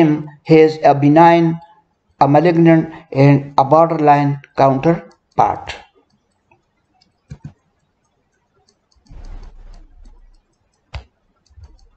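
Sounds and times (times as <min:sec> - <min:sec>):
sharp clicks: 0:04.9 - 0:11.9.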